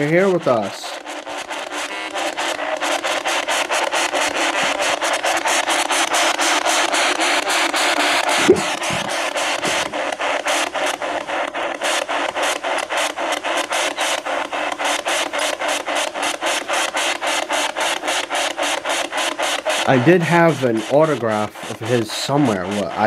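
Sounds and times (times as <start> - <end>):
pulsing radio static: 8.3 - 10.2, 19.7 - 23.0
short loud blip: 8.4 - 9.9.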